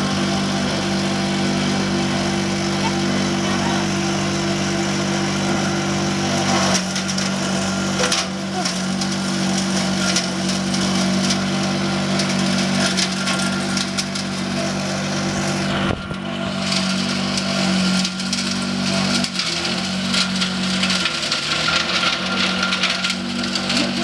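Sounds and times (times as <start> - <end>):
chopper machine motor hum: 0.0 - 24.0
stalks and leaves being cut: 5.2 - 24.0.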